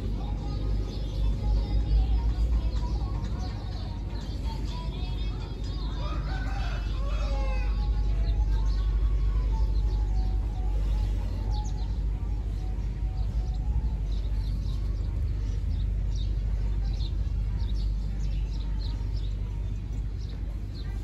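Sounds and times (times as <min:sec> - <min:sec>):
small birds chirping: 0:00.0 - 0:21.0
steady low rumble: 0:00.0 - 0:21.0.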